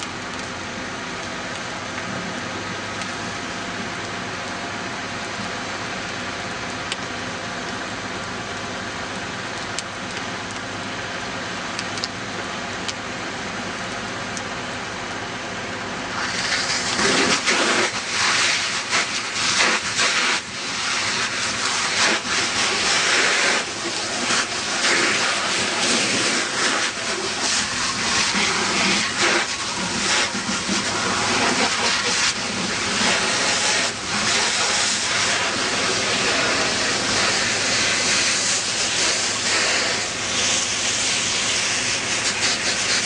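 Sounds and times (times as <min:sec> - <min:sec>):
fire popping: 0:00.0 - 0:43.0
fire rushing: 0:00.0 - 0:43.0
fire hose hissing into steam: 0:15.8 - 0:43.0.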